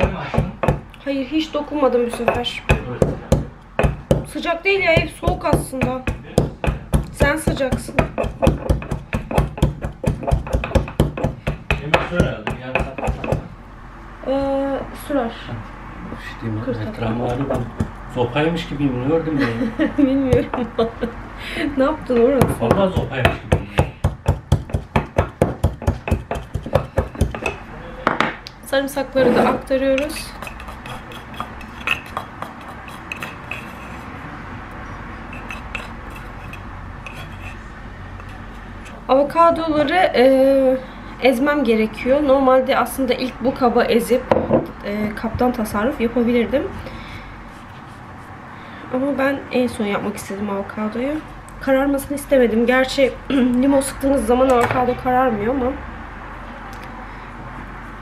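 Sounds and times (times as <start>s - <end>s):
pestle pounding in wooden mortar: 0.0s - 1.0s, 2.0s - 13.5s, 17.1s - 18.1s, 22.2s - 28.4s, 29.9s - 33.8s
knife scraping a mortar: 24.2s - 27.6s, 29.2s - 34.2s, 35.2s - 39.0s.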